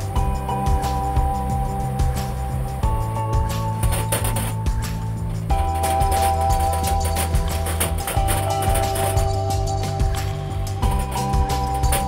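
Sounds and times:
background music with bass line: 0:00.0 - 0:12.0.

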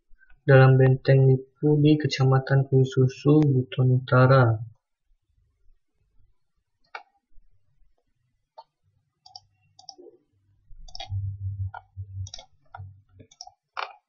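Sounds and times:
computer mouse clicking: 0:08.6 - 0:10.0, 0:10.8 - 0:14.0
low hum: 0:10.6 - 0:13.2.

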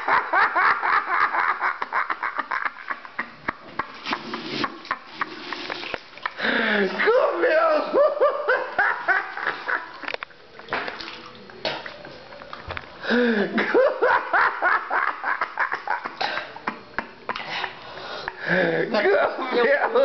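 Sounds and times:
person laughing hard: 0:00.0 - 0:03.9, 0:06.8 - 0:10.0, 0:13.1 - 0:16.3.

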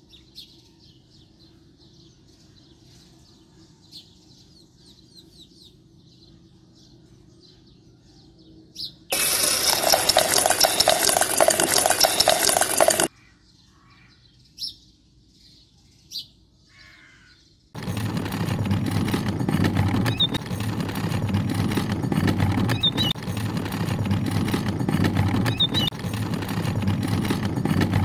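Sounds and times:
faint birds chirping: 0:00.0 - 0:28.0
toy motor and gears rattling: 0:09.1 - 0:13.1, 0:17.8 - 0:28.0.

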